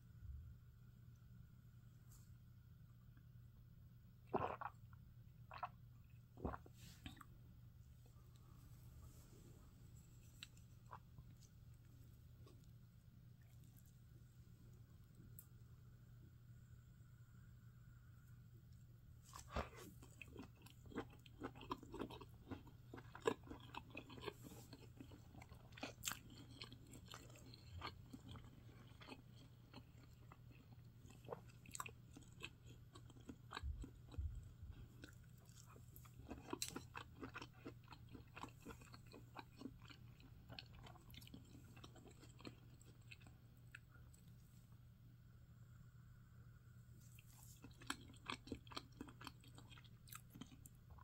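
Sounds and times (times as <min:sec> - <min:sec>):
low steady hum: 0:00.0 - 0:51.0
wet chewing: 0:04.3 - 0:04.8, 0:05.5 - 0:07.3, 0:19.3 - 0:44.3, 0:47.1 - 0:51.0.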